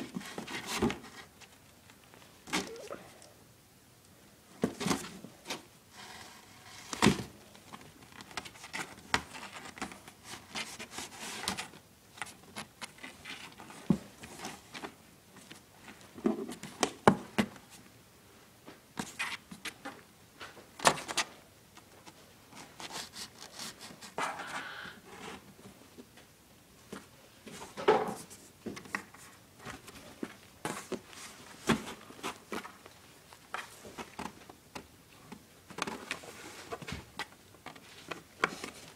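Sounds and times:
kitten scratching cardboard: 22.6 - 24.2.

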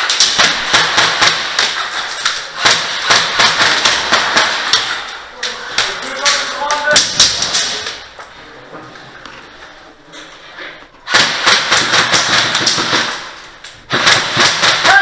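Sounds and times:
airsoft guns firing bursts: 0.0 - 5.0, 11.1 - 15.0.

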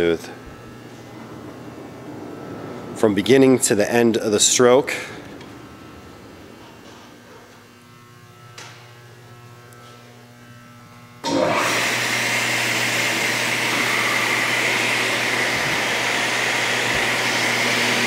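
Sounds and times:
table saw motor and blade whirring: 11.2 - 18.0.

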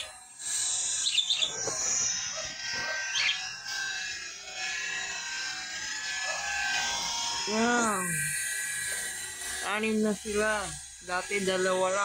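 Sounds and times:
budgerigars chattering: 0.0 - 3.6
sharp bird chirps: 0.8 - 3.6.

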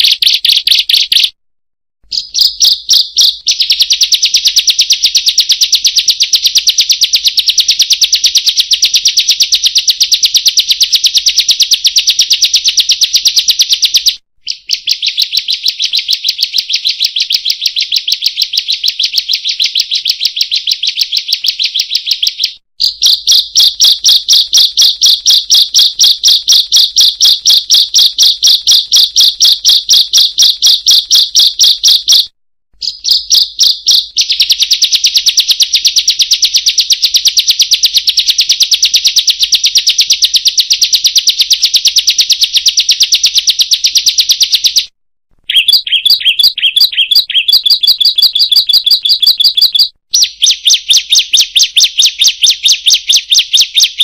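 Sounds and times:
bird calling sharp high notes: 45.5 - 54.0.

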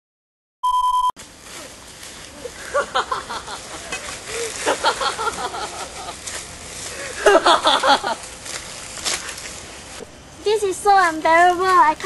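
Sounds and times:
electronic beep: 0.6 - 1.1
outdoor hiss: 1.2 - 12.0.

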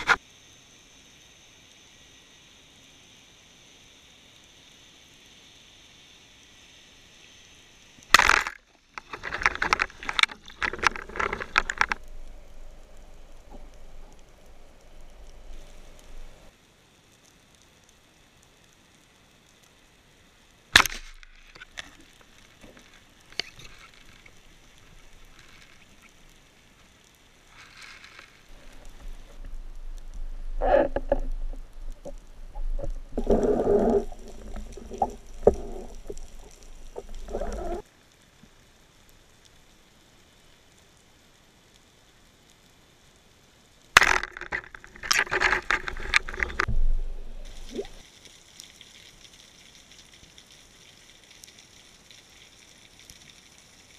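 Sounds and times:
quiet water hiss: 0.0 - 53.9
water splashing and sloshing: 8.0 - 16.5, 20.8 - 37.9, 44.0 - 53.9
low rumble: 28.5 - 37.8, 46.6 - 48.0.

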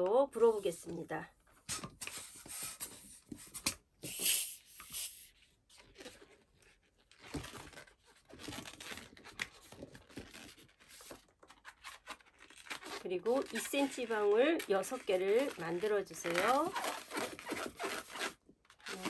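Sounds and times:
balloon pump air rush: 1.6 - 5.4
latex balloon rubbing: 14.8 - 19.0.

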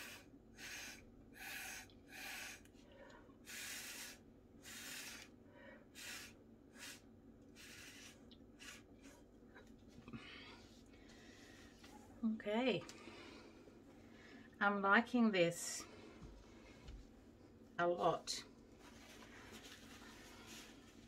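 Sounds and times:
breath puffs through a straw: 0.0 - 2.7, 3.4 - 5.3, 5.9 - 7.0, 7.6 - 9.2.

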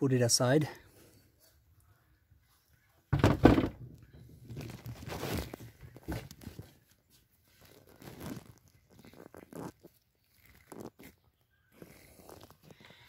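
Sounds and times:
sharp knocks: 3.2 - 3.8
plastic rustling and scraping: 3.2 - 13.0.

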